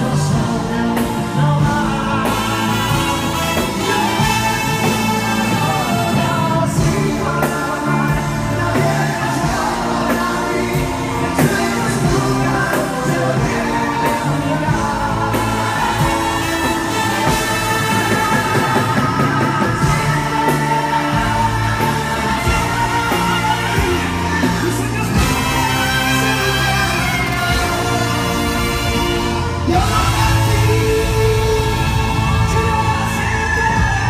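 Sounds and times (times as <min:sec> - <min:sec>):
live band with saxophones: 0:00.0 - 0:34.0
men singing into microphones: 0:00.0 - 0:34.0.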